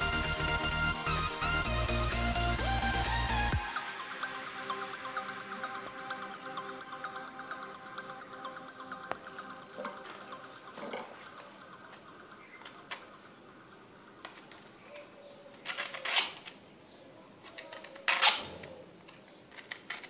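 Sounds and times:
quiet handling sounds: 14.2 - 20.0.

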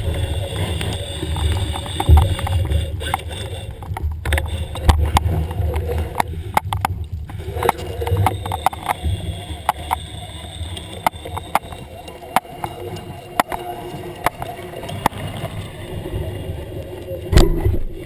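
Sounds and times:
underwater water rumble: 0.0 - 18.0
sharp clicks: 7.6 - 15.6.

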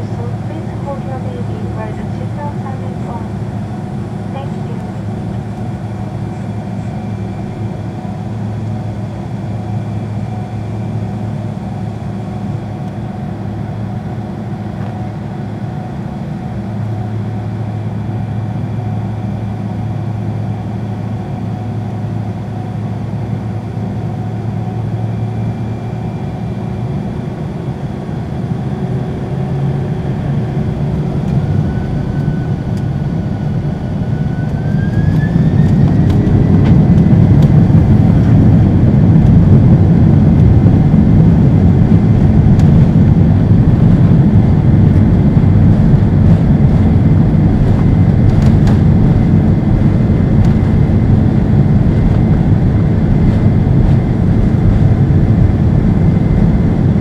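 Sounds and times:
jet engines humming: 0.0 - 57.0
engine whine rising: 27.8 - 57.0.

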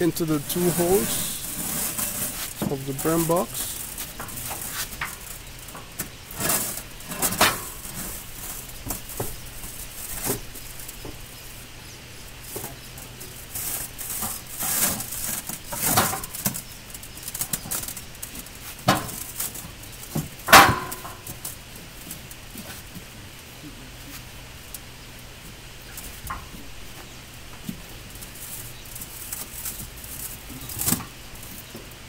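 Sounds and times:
heavy steel parts clanking: 20.4 - 21.5.

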